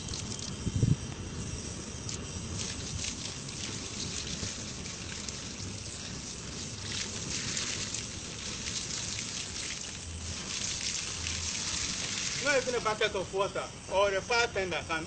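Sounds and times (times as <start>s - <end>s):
gas flame rushing: 0.0s - 15.0s
water splashing on metal cylinder: 2.6s - 13.1s.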